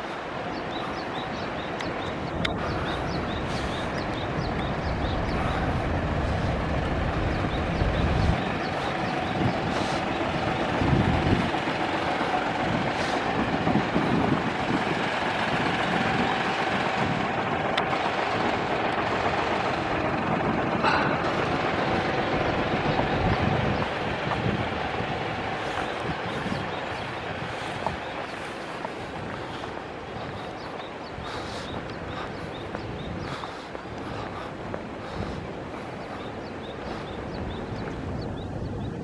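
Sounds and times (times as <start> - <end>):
road traffic hiss: 0.0 - 39.0
deep rumble: 1.4 - 30.3.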